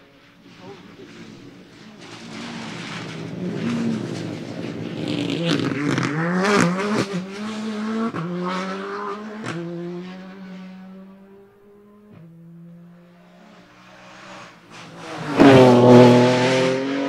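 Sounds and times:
rally car engine passing: 0.0s - 17.0s
exhaust cracks: 0.3s - 8.3s.

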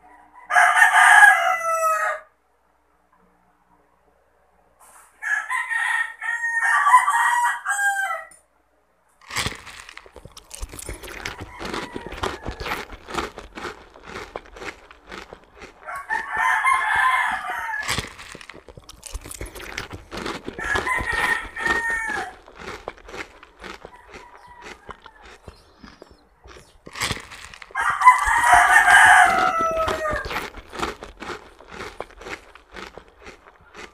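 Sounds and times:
rooster crowing: 0.0s - 2.4s, 5.2s - 8.4s, 10.4s - 32.9s
crunching and chewing mango: 9.2s - 33.9s.

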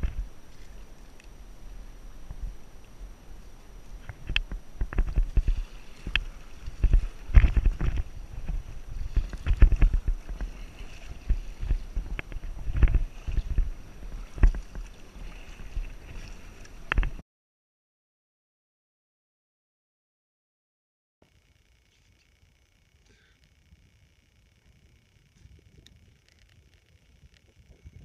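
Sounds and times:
low rumble on microphone: 0.0s - 17.2s, 22.6s - 28.0s
paddle splashing in water: 4.0s - 17.2s.

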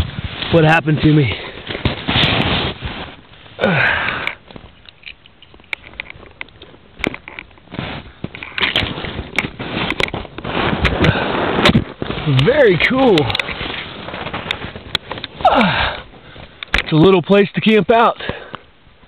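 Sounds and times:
snow and clothing rustling: 0.0s - 3.6s, 7.6s - 17.8s.

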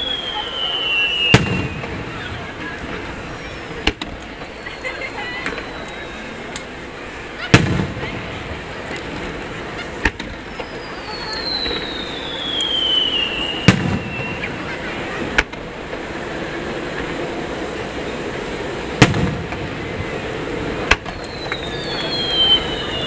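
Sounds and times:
falling firework whistles: 0.0s - 23.0s
firework shells bursting: 0.0s - 23.0s.

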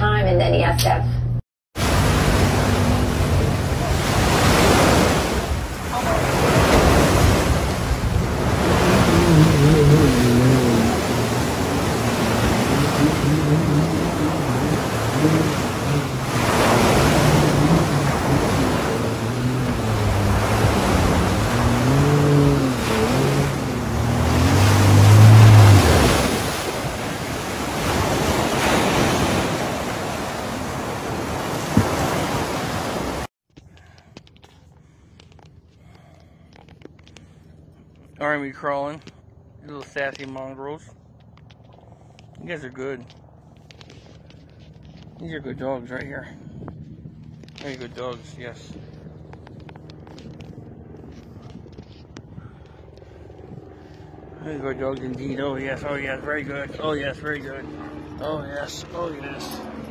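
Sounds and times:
jet ski engine revving: 1.8s - 33.3s, 47.4s - 59.9s
surf washing in: 1.8s - 33.3s
wind buffeting microphone: 45.0s - 54.2s.

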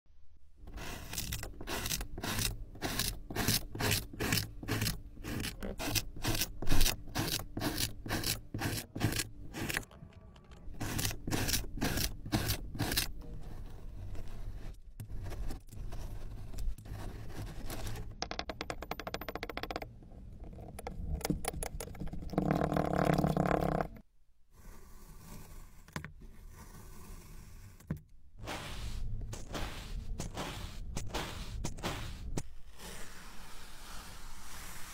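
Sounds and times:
knife cutting sand block: 0.7s - 9.8s, 10.8s - 13.1s, 28.4s - 34.9s
spiked roller pressed across sand: 0.7s - 9.9s, 24.5s - 34.9s
blade slicing through sand: 28.4s - 34.9s.

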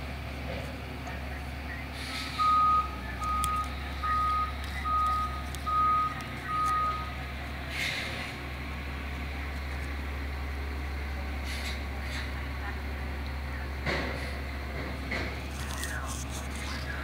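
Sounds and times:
truck engine running: 0.0s - 17.0s
truck back-up alarm beeping: 1.4s - 7.4s.

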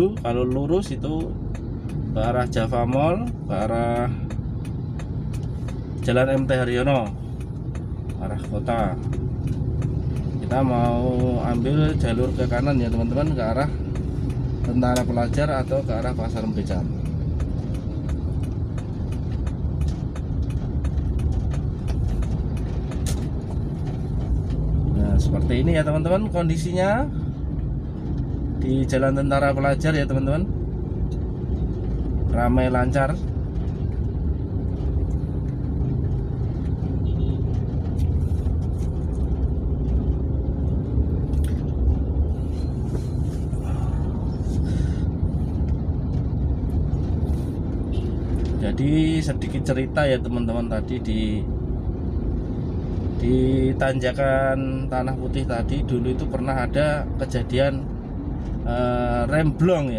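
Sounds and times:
faint light ticks: 0.0s - 28.6s
car engine and road rumble: 0.0s - 59.9s.

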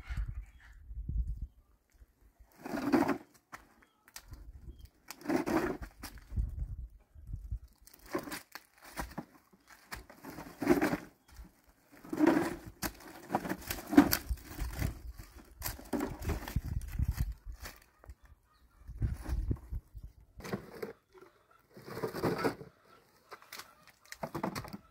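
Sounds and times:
dry leaves rustling and crunching: 7.7s - 11.0s.

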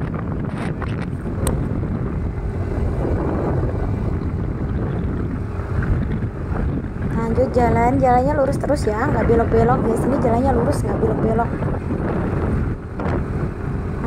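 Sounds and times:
motorcycle engine and road noise: 0.0s - 14.0s
wind buffeting microphone: 0.0s - 14.0s.

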